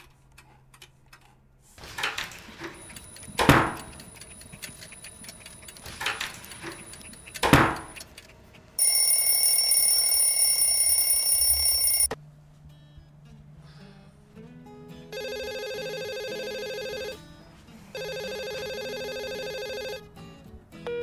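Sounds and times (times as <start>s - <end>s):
alarm clock ringing: 8.8s - 12.1s.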